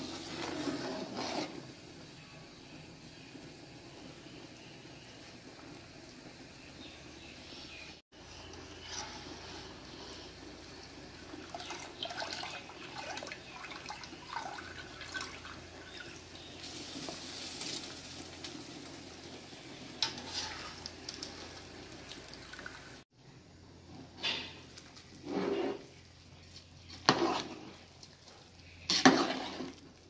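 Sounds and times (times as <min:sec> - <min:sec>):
water splashing and dripping: 0:11.4 - 0:15.6, 0:20.6 - 0:23.0.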